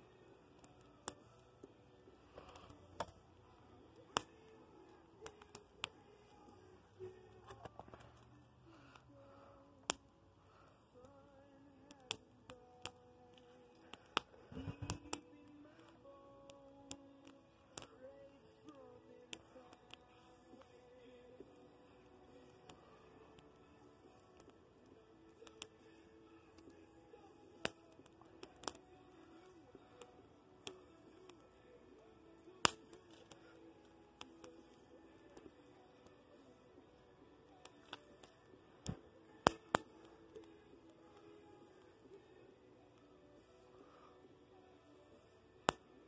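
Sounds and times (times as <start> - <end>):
burning wood crackling and popping: 0.0 - 44.0.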